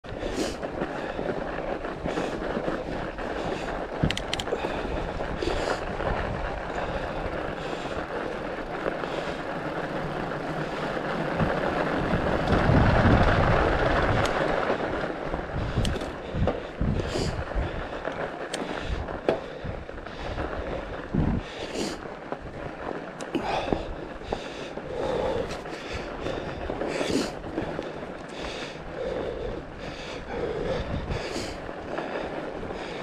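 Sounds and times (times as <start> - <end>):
wind on camera: 0.0 - 22.8, 23.5 - 33.0
bike tyres on snow: 0.0 - 33.0
sharp clicks: 4.0 - 4.5.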